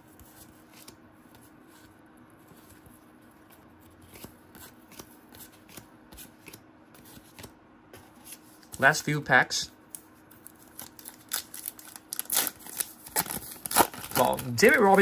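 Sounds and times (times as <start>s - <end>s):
trading cards rustling: 2.4s - 9.0s, 9.9s - 15.0s.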